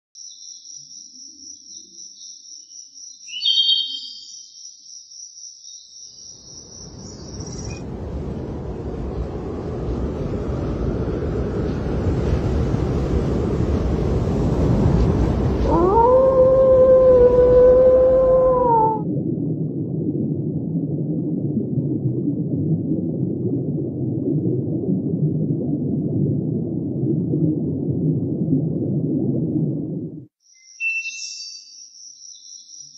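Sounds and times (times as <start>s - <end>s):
bird-like chirp: 0.2s - 7.8s, 30.4s - 32.9s
low rushing noise: 7.2s - 20.8s.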